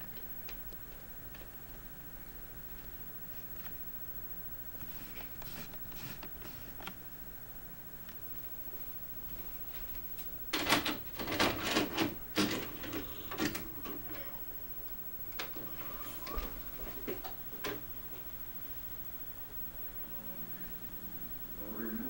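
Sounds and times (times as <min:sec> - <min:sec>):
low electrical hum: 0:00.0 - 0:22.0.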